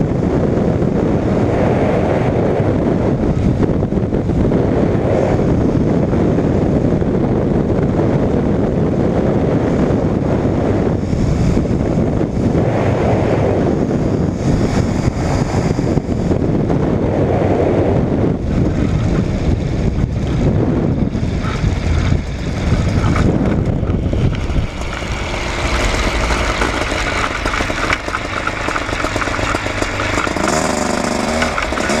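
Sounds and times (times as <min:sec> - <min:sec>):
small aircraft engine running: 0:00.0 - 0:32.0
wind rushing over microphone: 0:00.0 - 0:32.0.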